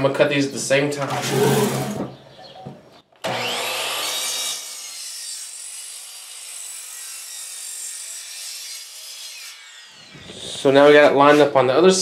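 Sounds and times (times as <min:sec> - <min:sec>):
miter saw cutting wood: 0:03.2 - 0:11.5.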